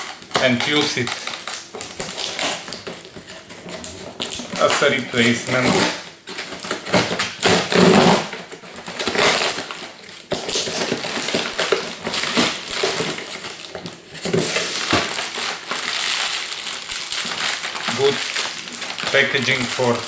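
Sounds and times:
plastic wrapping crinkling: 0.0s - 20.0s
cardboard box tearing: 6.6s - 16.4s.

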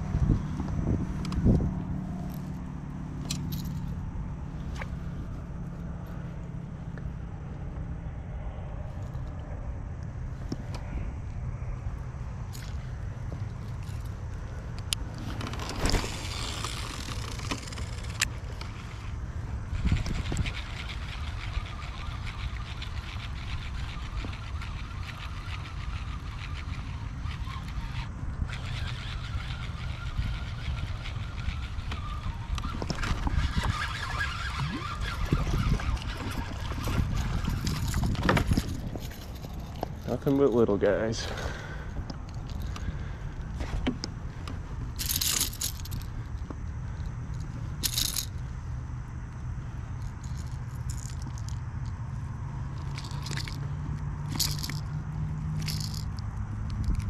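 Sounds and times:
wind on microphone: 0.0s - 2.3s, 18.9s - 40.1s
fishing reel whirring: 12.4s - 48.8s, 49.7s - 57.0s.

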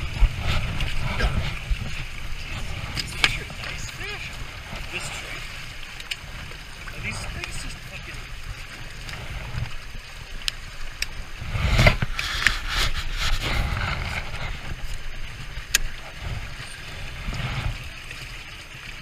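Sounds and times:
wind rumbling on microphone: 0.0s - 19.0s
clothing rubbing against camera: 11.4s - 14.9s.

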